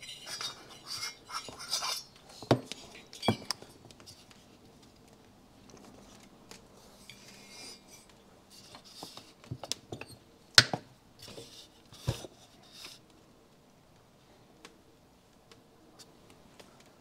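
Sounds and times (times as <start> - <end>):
metal parts clinking and knocking: 0.0 - 3.7.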